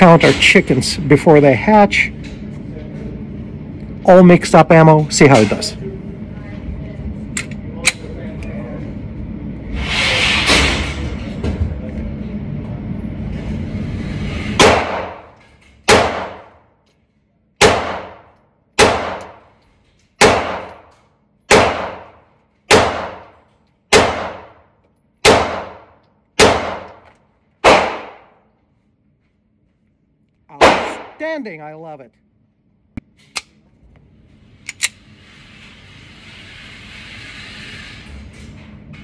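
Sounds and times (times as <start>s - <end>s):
pistol shots echoing: 14.6s - 15.3s, 15.9s - 16.5s, 17.6s - 19.4s, 20.2s - 20.8s, 21.5s - 23.3s, 23.9s - 24.6s, 25.2s - 26.9s, 27.6s - 28.3s, 30.6s - 31.2s.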